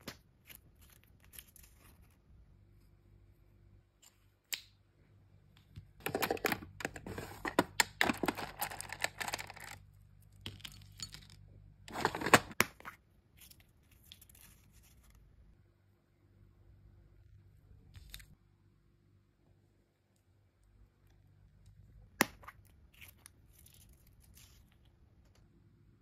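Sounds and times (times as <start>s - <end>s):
plastic beads clattering: 8.0s - 9.8s.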